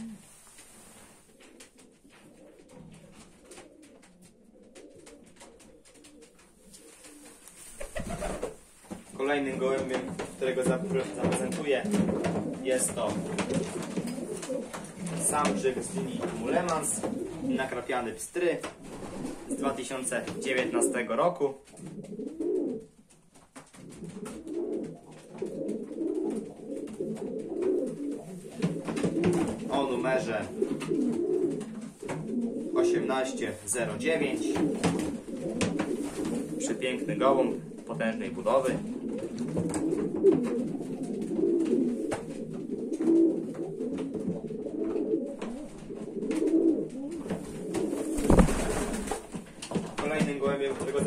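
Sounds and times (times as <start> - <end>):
pigeons cooing: 0.0 - 8.6, 9.2 - 51.0.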